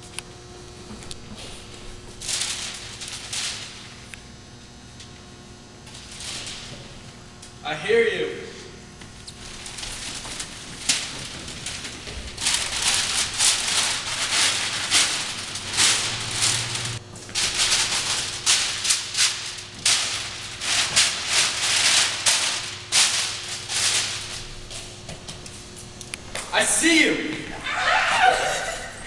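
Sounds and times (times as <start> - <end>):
rustling rattling noise: 9.2 - 25.6.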